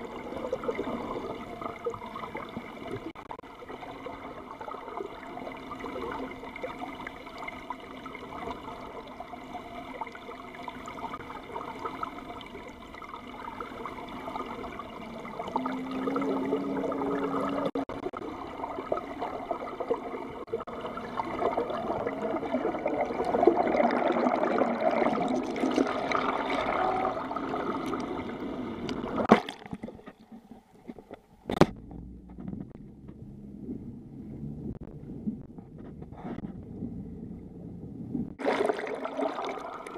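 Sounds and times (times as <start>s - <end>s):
faint steady drone: 0.0s - 29.3s, 30.0s - 39.9s
underwater water rushing bubbling: 0.0s - 30.0s, 38.0s - 39.9s
waves splashing against hull: 10.0s - 39.9s.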